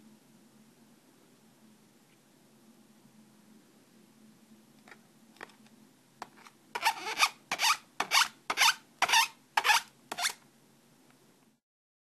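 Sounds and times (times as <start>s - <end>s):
beak scraping on fabric pad: 6.4s - 10.4s.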